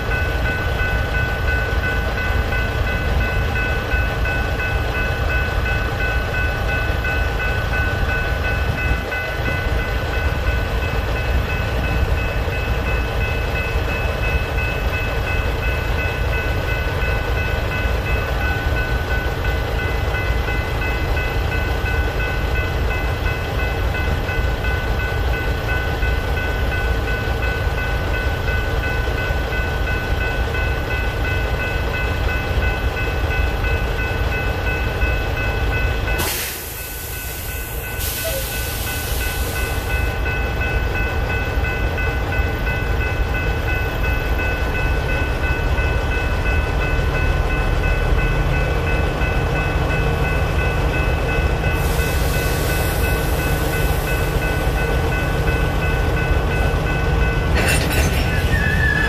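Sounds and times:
electronic crossing bells ringing: 0.0 - 59.0
hopper cars rolling: 57.2 - 59.0.

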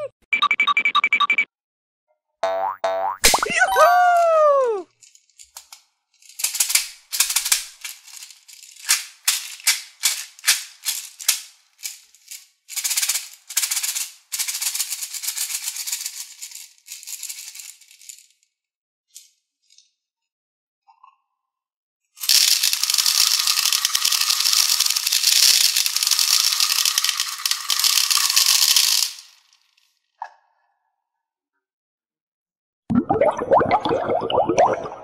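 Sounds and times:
falling boing sound effect: 2.4 - 4.0
beads rattling in plastic toy bottle: 4.9 - 18.4, 22.2 - 29.9.

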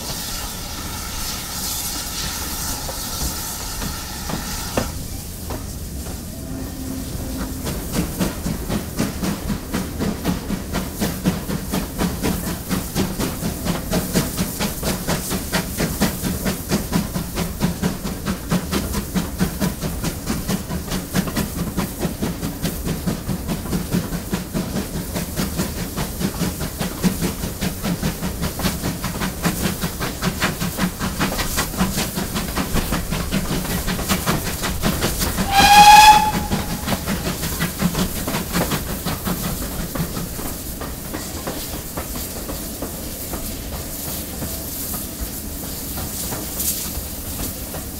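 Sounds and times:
steam hissing: 0.0 - 47.9
steam locomotive exhaust beats: 0.0 - 47.9
steam whistle blast: 6.3 - 8.2, 35.4 - 37.2.

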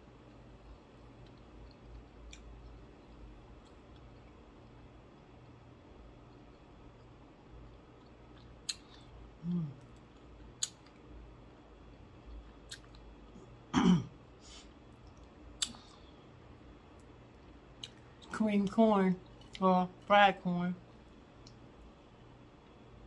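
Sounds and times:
low steady hum: 0.0 - 23.0
mouth clicks and smacks: 8.3 - 9.1, 9.8 - 11.0, 12.6 - 13.0, 15.0 - 16.0
person humming: 9.4 - 9.8.

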